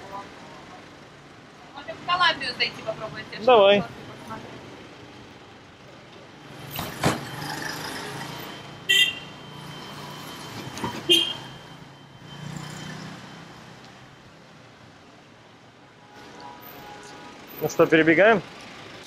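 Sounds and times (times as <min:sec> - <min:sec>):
street traffic: 0:00.0 - 0:19.0
vehicle passing: 0:06.4 - 0:08.7.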